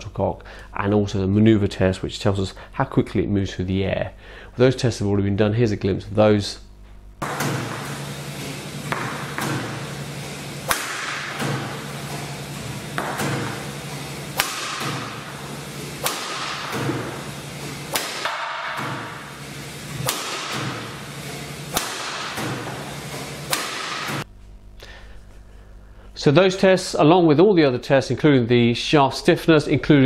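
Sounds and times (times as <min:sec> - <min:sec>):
racket smacking shuttlecock: 0:07.2 - 0:19.1, 0:19.9 - 0:24.3
steady hiss: 0:07.4 - 0:24.2.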